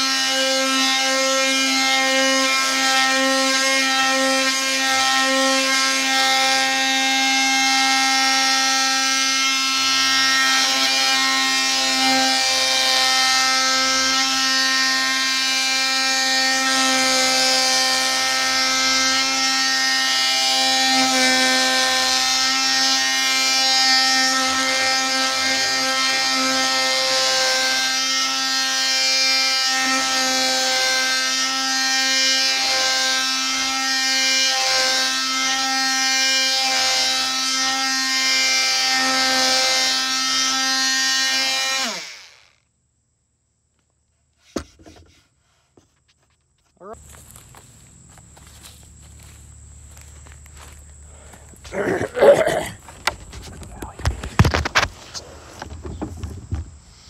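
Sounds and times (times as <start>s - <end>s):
oscillating tool whine: 0.0s - 42.6s.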